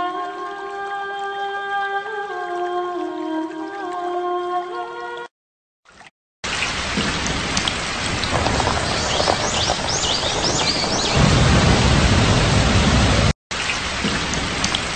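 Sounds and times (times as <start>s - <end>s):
heavy rain falling: 6.5s - 14.9s.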